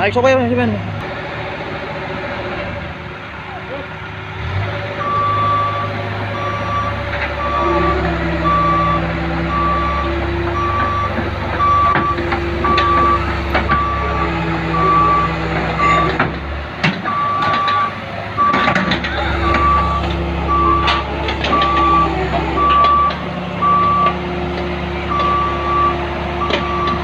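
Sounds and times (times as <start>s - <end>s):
diesel engine running under load: 0.0s - 27.0s
excavator travel alarm beeping: 5.0s - 16.2s, 17.1s - 24.2s, 25.1s - 27.0s.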